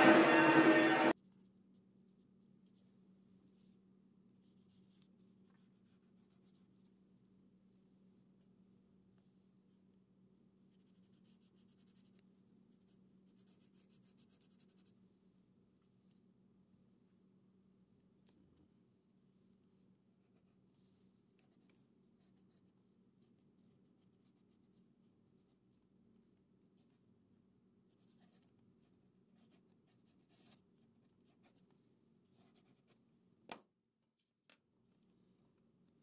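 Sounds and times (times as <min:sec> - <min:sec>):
pencil scratching on paper: 0:04.4 - 0:06.9, 0:10.7 - 0:12.2, 0:12.8 - 0:15.0, 0:20.2 - 0:23.4, 0:27.9 - 0:31.7, 0:32.3 - 0:33.0.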